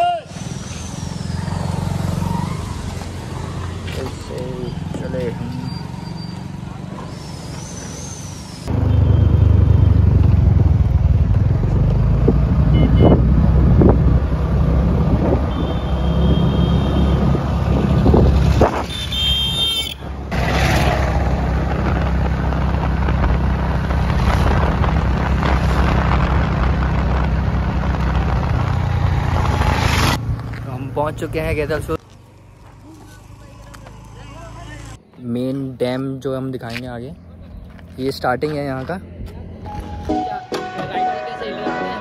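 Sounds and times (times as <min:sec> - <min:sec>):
road noise: 0:00.0 - 0:42.0
scooter engine: 0:08.6 - 0:25.2
wind rumble on microphone: 0:12.2 - 0:15.6, 0:17.2 - 0:18.8.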